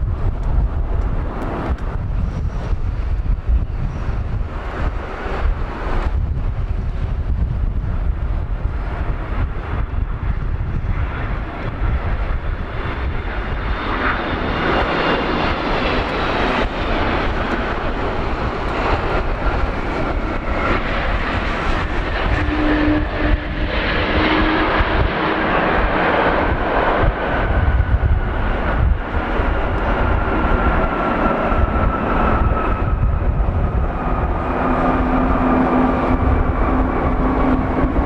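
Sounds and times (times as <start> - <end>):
jet engines landing: 0.0 - 38.0
high fan whistle: 22.2 - 24.8.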